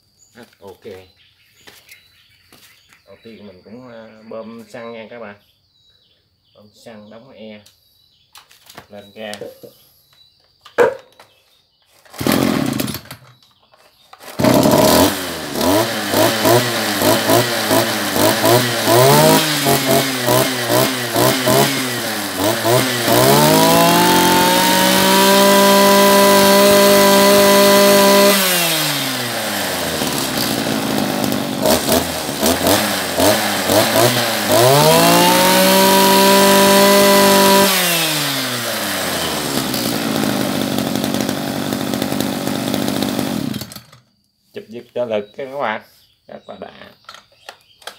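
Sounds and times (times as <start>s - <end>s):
brush cutter engine revving: 12.0s - 13.4s, 14.1s - 44.1s.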